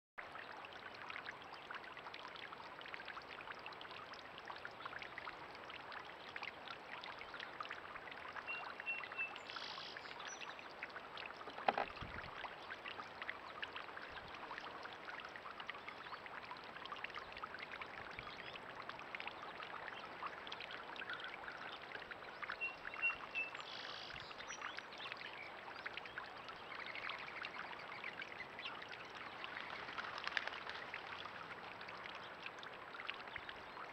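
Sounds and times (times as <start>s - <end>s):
fountain splashing into pond: 11.0s - 33.9s.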